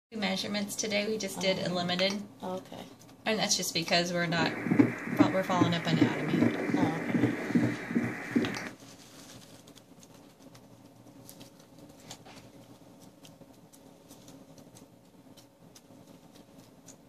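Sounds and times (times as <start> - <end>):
faint low hum: 0.2 - 17.0
small clicks and ticks: 9.6 - 17.0.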